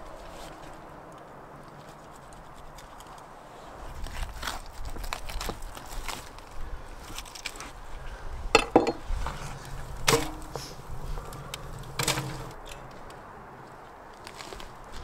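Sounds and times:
sharp hard knocks: 10.0 - 10.6.

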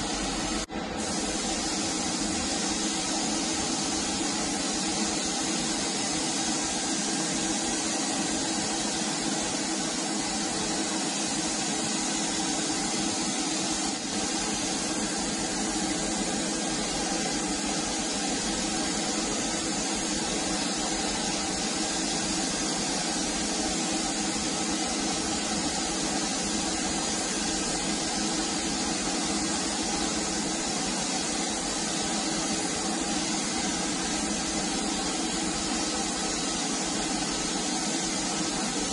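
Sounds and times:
spray gun hissing: 0.0 - 38.9.

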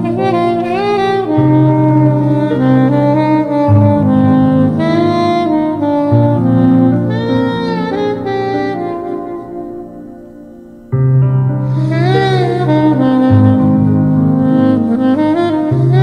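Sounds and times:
low bass notes: 0.0 - 9.0
sliding wavering lead melody: 0.0 - 16.0.

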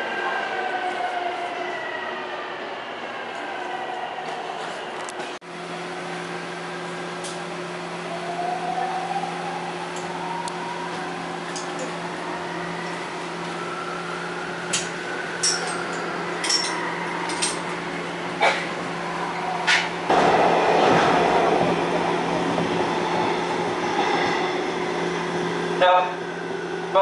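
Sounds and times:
subway car electrical hum: 3.0 - 27.0.

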